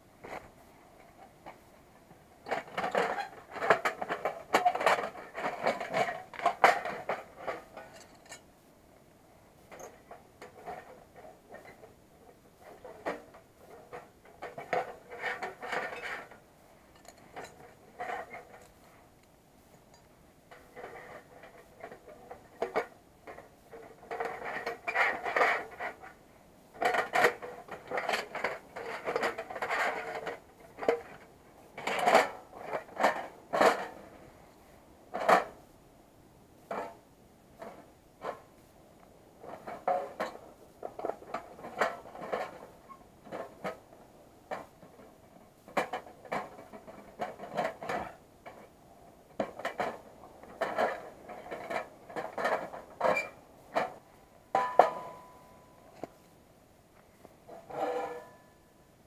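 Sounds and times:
metal panels clanking and scraping: 12.6 - 16.4, 39.4 - 56.2.

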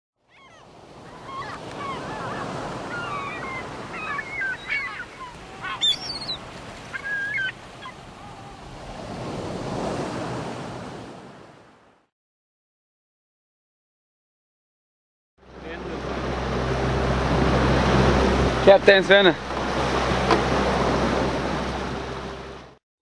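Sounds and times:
birds crying: 0.3 - 8.8
surf washing on shore: 0.3 - 11.9, 15.5 - 22.8.

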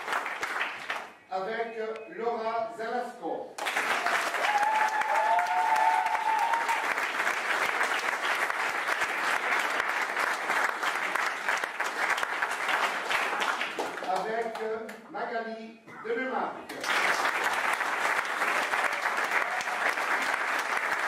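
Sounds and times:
audience applauding: 0.0 - 1.1, 3.6 - 14.6, 16.7 - 21.0.

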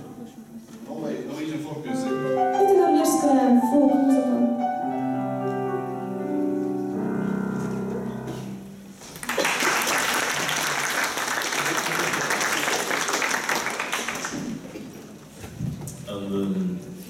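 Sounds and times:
grand piano playing: 1.4 - 9.3
audience applause: 9.1 - 15.0.

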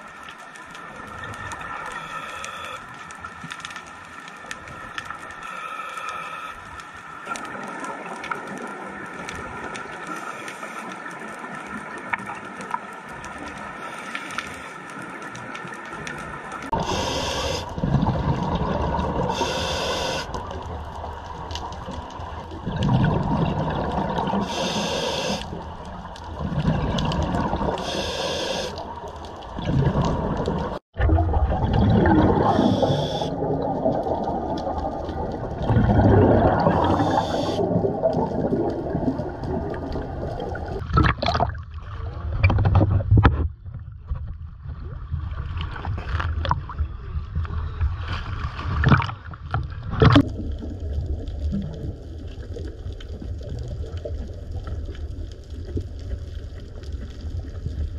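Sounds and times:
muffled underwater rumble: 0.0 - 57.9
regulator exhalation bubbles: 31.0 - 33.5, 35.6 - 38.9.

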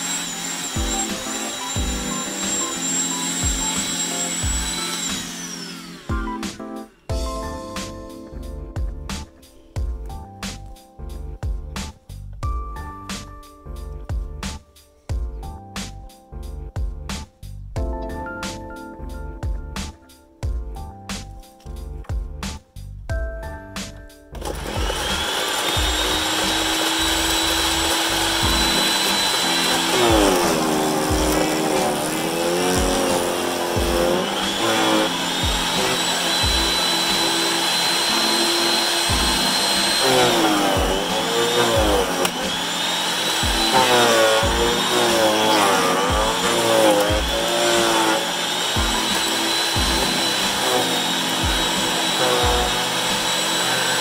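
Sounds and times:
chipper shredder whining: 0.0 - 8.0, 24.4 - 54.0
background music with steady beat: 0.0 - 54.0.

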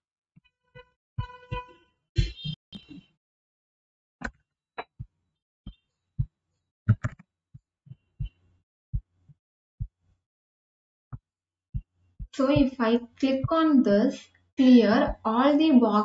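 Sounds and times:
keyboard keys and mouse clicks: 6.9 - 7.3.

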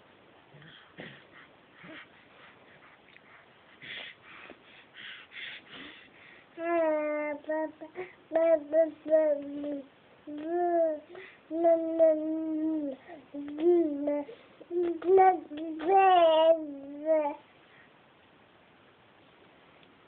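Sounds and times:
baby breathing in huffs: 0.6 - 6.6
baby cooing: 6.6 - 17.4.

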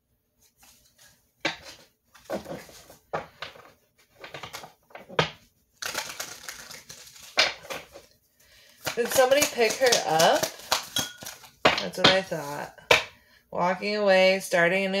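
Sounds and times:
cards shuffling: 5.8 - 8.1, 8.7 - 11.6.

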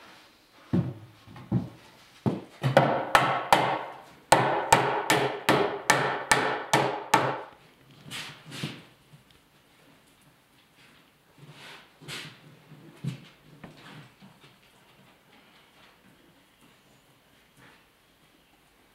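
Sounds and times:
knocking on wooden boards: 0.8 - 7.5.

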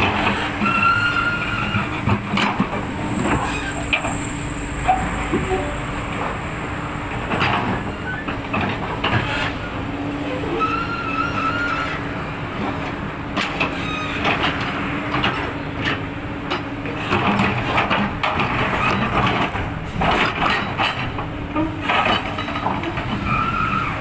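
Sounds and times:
excavator diesel engine running: 0.0 - 24.0
brief squeal: 0.6 - 1.8, 3.4 - 5.9, 8.0 - 8.3, 10.3 - 12.0.

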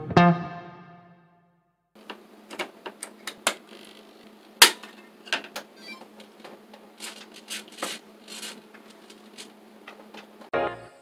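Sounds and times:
plastic parts clicking and knocking: 6.3 - 10.3.

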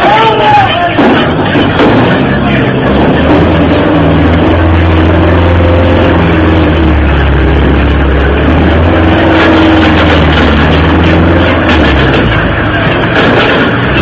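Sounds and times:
machine drone with low hum: 0.9 - 14.0.

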